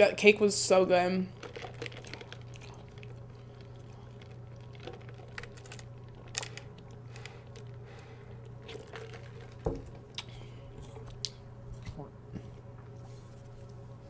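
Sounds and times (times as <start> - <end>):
faint steady hum: 0.0 - 14.0
swallowing gulps: 1.4 - 10.4
wet mouth clicks: 10.1 - 10.3.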